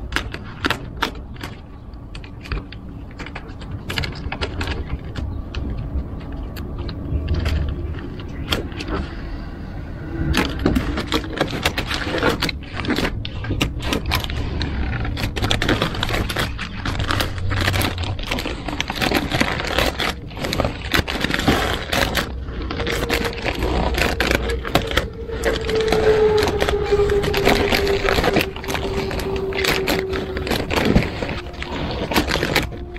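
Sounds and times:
steady hum: 5.3s - 32.9s
sticker peeling off crackling: 10.0s - 32.9s.

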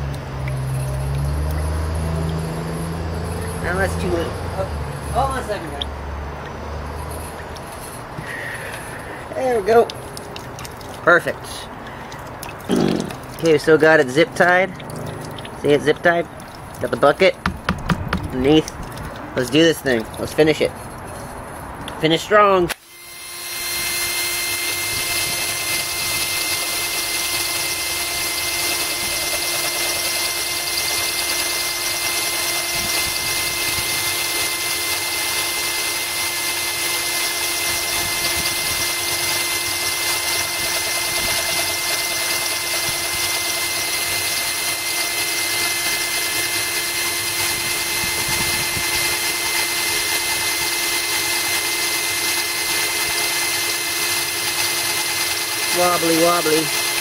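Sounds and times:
hose water running: 0.0s - 57.0s
drill bit grinding into glass: 22.8s - 57.0s.

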